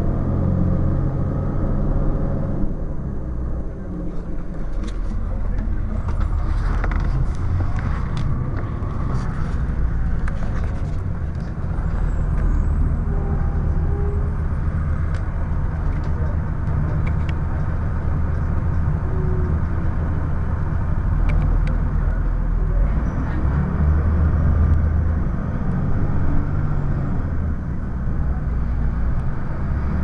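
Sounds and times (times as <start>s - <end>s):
diesel bus engine rumbling: 0.0s - 30.0s
bus body rattling: 4.1s - 22.5s.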